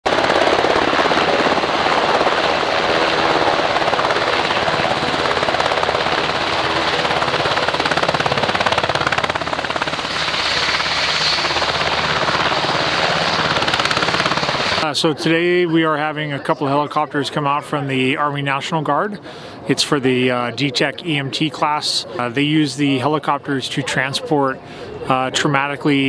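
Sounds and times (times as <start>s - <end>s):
helicopter rotor and turbine noise: 0.0s - 16.7s.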